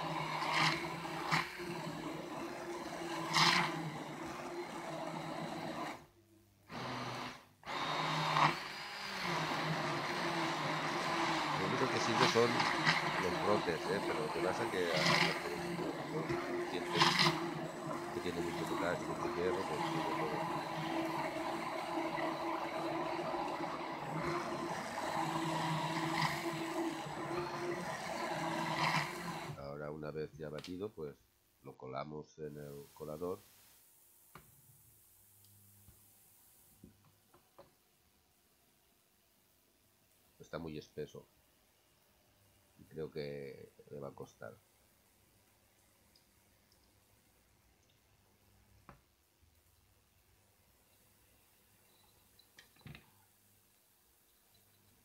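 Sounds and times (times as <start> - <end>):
liquid churning and sloshing: 0.0 - 6.0, 8.2 - 29.6
immersion blender motor hum: 0.0 - 6.1, 6.7 - 29.6.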